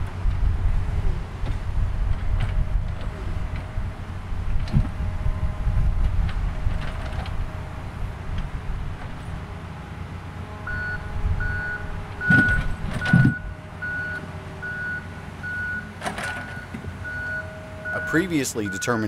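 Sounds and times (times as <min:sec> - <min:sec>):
low rumble: 0:00.0 - 0:09.4
reversing alarm beeping: 0:10.6 - 0:19.0
loud clunks: 0:12.2 - 0:13.4, 0:16.0 - 0:16.9.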